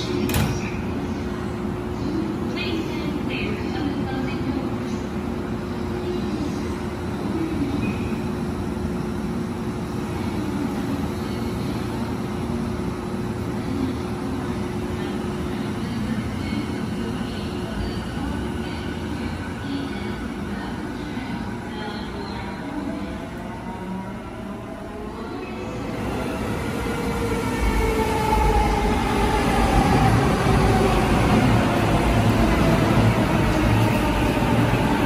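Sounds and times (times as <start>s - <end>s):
electric train humming: 8.3s - 35.0s.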